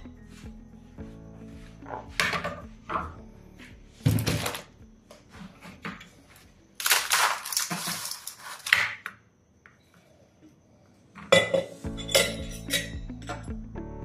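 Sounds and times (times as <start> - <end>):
ice cubes crackling loose: 6.8 - 8.8.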